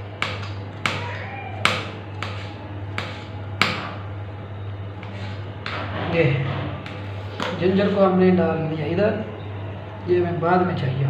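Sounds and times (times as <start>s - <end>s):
low hum: 0.0s - 11.0s
knife chopping on cutting board: 0.2s - 4.0s.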